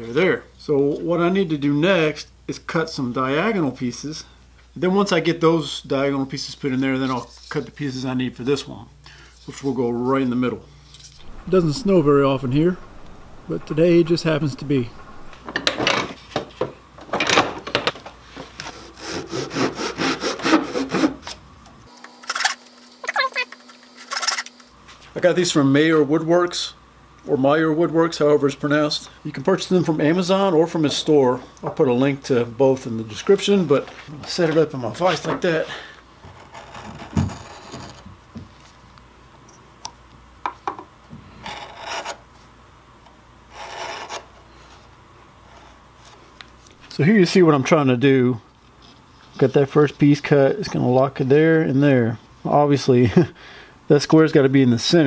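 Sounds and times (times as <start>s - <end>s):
handsaw cutting thin wood strips: 18.7s - 21.2s.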